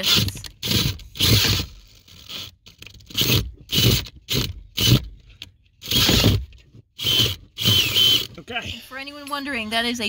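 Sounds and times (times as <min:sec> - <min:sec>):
cordless drill grinding through metal: 0:00.0 - 0:08.8
faint drill whine: 0:07.0 - 0:08.3.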